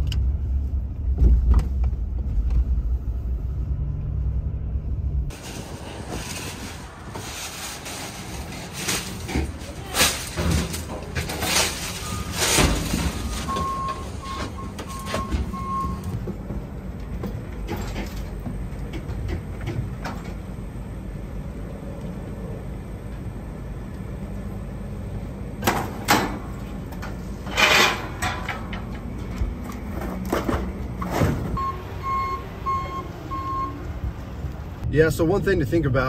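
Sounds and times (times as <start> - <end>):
low engine rumble: 0.0 - 36.0
hand truck rolling on concrete: 5.3 - 20.8, 25.8 - 33.6
reversing alarm beeps: 12.0 - 16.2, 31.6 - 33.8.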